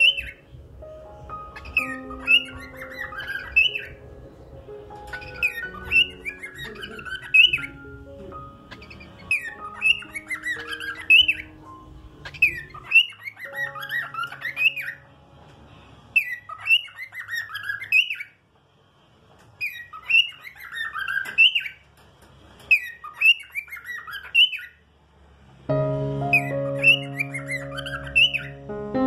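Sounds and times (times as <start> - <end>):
cockatiel whistling song: 0.0 - 0.6, 1.2 - 4.2, 4.9 - 15.2, 16.0 - 18.4, 19.6 - 21.8, 22.7 - 24.8, 26.3 - 28.7.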